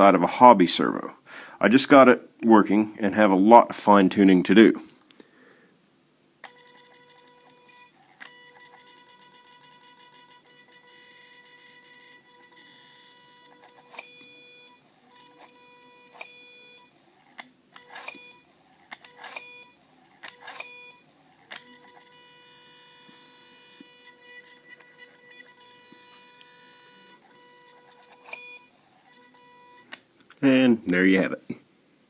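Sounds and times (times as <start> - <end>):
throttle motor whining: 6.4 - 30.0.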